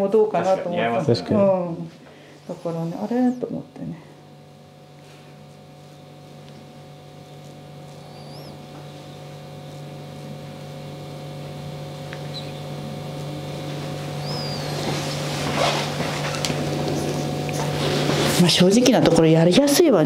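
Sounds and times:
low mechanical hum: 0.0 - 20.0
faint high chirps: 8.0 - 8.6, 12.2 - 12.8, 14.2 - 14.8.

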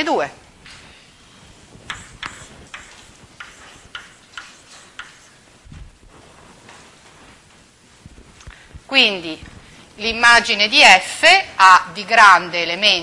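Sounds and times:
chalk tapping on a blackboard: 1.8 - 5.4
soft low thump: 5.7 - 6.2.

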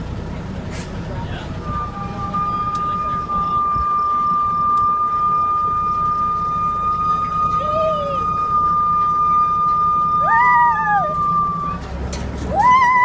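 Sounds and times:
steady high whine: 0.0 - 13.0
truck engine rumble: 0.0 - 13.0
riders calling whoo: 6.9 - 11.8, 12.5 - 13.0.

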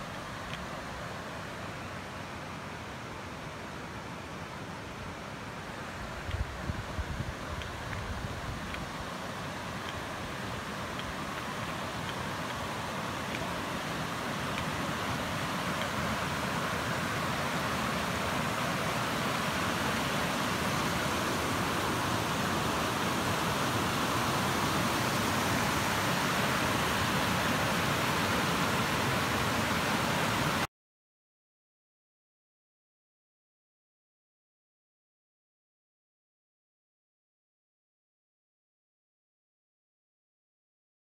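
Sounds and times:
river rapids roaring: 0.0 - 30.7.

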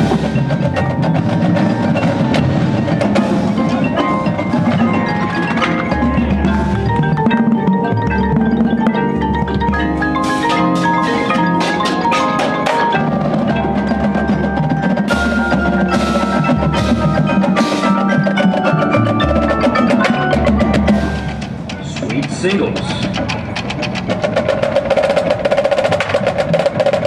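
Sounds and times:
low bass notes: 0.0 - 12.2
marimbas playing chords: 0.0 - 27.0
sharp percussion hits: 0.0 - 27.0.

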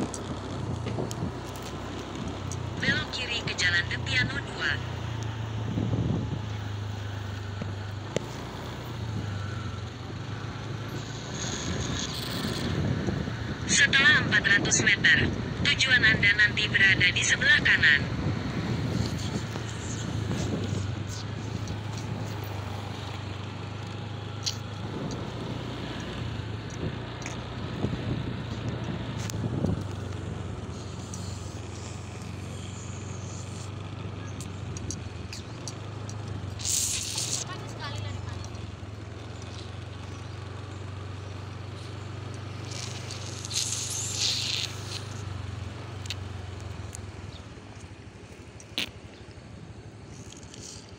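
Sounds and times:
road noise: 0.0 - 50.9
vehicle engine hum: 0.0 - 50.9
wind noise on microphone: 0.6 - 1.5, 5.6 - 6.6, 11.4 - 16.2, 16.9 - 22.6, 24.5 - 30.4
brief hissing rush: 36.6 - 37.4.

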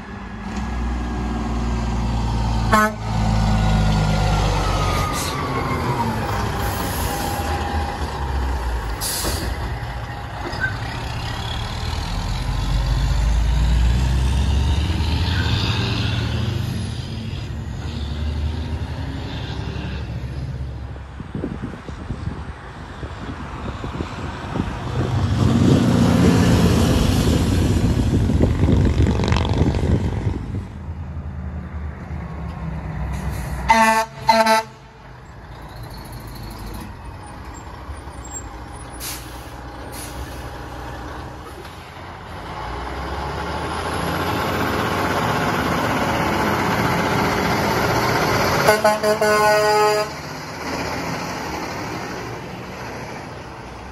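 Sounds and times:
diesel trucks passing: 0.0 - 53.9
truck horn blasts: 2.7 - 3.2, 33.6 - 35.0, 48.6 - 50.2.

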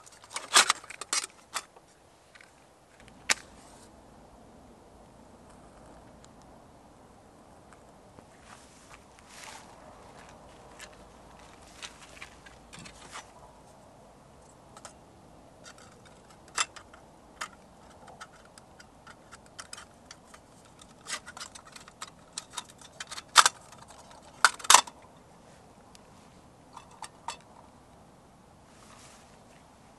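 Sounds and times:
small metal clicks and taps: 15.6 - 25.0.

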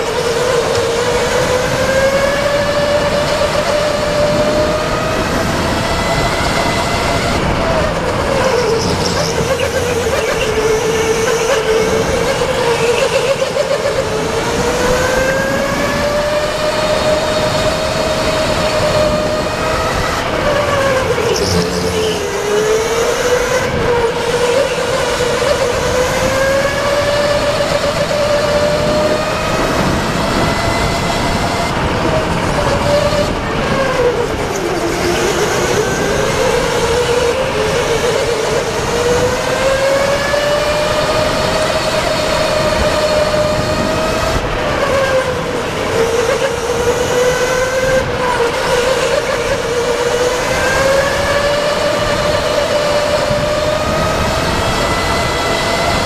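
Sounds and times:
electric go-kart motor whining: 0.0 - 56.0
wind noise: 0.0 - 56.0
tyre noise: 2.1 - 14.6.

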